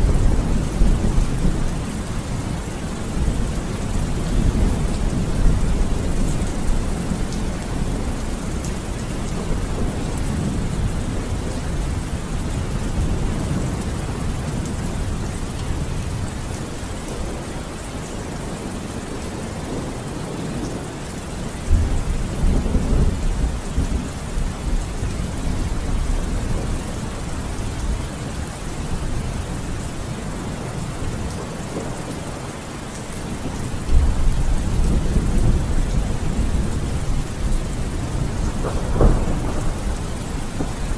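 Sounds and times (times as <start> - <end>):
low rolling thunder: 0.0 - 16.5, 33.2 - 40.9
steady rain: 0.0 - 40.9.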